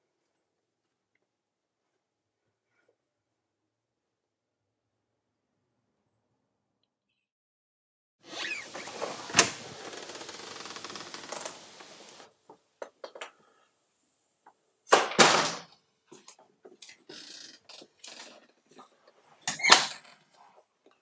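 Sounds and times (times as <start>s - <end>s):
rustling and clicking: 8.5s - 12.3s.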